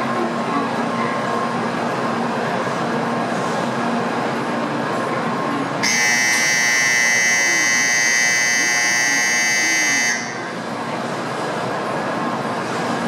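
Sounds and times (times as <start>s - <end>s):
train humming at platform: 0.0s - 13.0s
door-closing warning buzzer: 5.8s - 10.5s.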